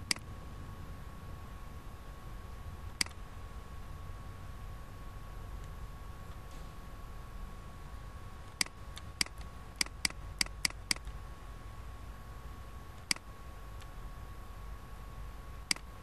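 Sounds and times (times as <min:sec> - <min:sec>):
computer mouse clicks: 0:00.0 - 0:00.2, 0:03.0 - 0:03.2, 0:08.5 - 0:11.2, 0:13.0 - 0:13.9, 0:15.7 - 0:15.9
faint steady hum: 0:00.0 - 0:16.0.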